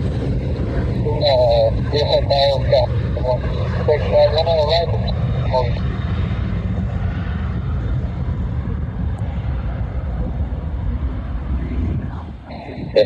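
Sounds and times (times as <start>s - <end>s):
jet engines rumbling: 0.0s - 13.0s.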